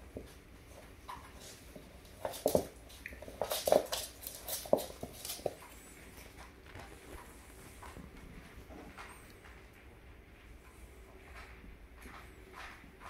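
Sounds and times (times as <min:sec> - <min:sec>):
paws tapping: 0:00.1 - 0:09.9
claws skittering on wooden floor: 0:01.3 - 0:05.7.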